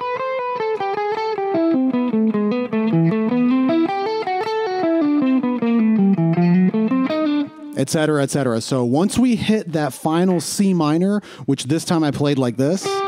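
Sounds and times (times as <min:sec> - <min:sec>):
electric guitar single-note line: 0:00.0 - 0:07.8, 0:12.8 - 0:13.0.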